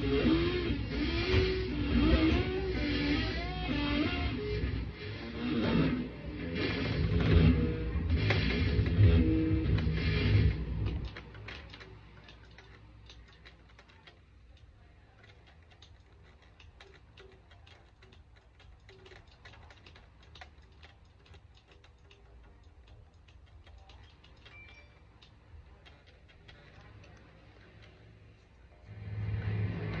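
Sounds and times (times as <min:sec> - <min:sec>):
amplified electric guitar: 0:00.0 - 0:11.1
steady low hum: 0:00.0 - 0:30.0.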